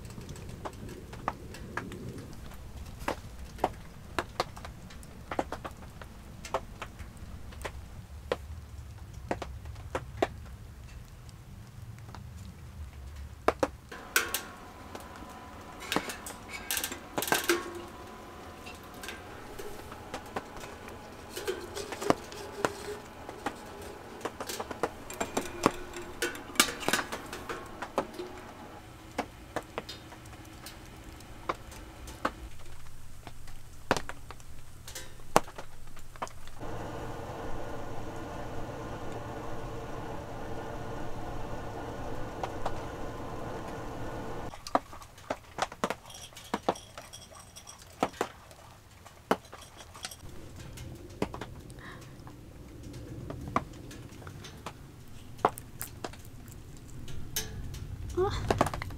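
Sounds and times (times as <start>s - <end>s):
low steady hum: 13.8s - 45.0s
metal clinks and rattles of oven: 14.0s - 32.3s, 45.9s - 48.4s, 49.4s - 51.7s, 57.0s - 58.2s.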